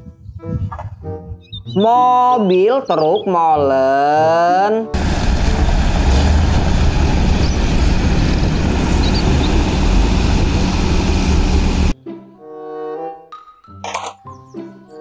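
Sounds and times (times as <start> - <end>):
music: 0.0 - 5.0, 12.0 - 15.0
diesel truck engine rumbling: 5.0 - 12.0
outdoor noise: 5.0 - 12.0.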